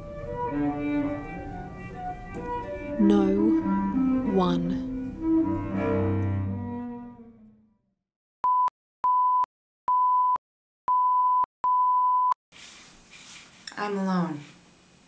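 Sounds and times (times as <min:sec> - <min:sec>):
music with low strings: 0:00.0 - 0:07.4
electronic test tone beeps: 0:08.4 - 0:12.4.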